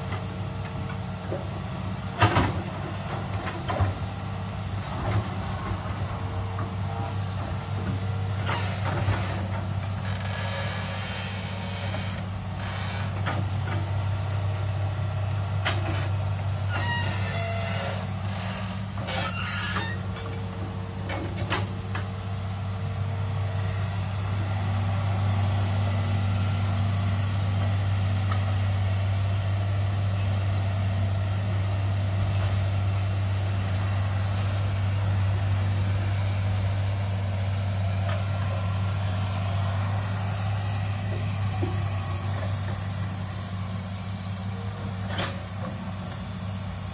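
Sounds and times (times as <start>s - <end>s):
excavator diesel engine running: 0.0s - 46.9s
short squeaks and knocks: 16.7s - 20.4s.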